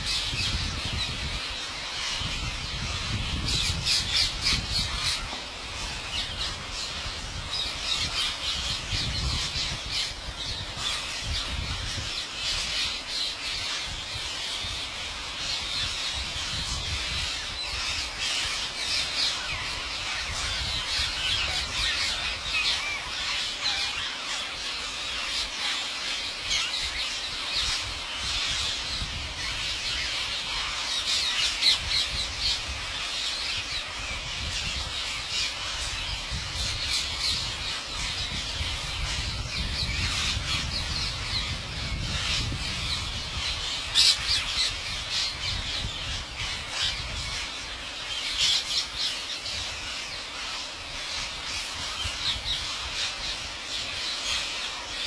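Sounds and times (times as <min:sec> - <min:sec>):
parakeet flock screeching: 0:29.4 - 0:55.0.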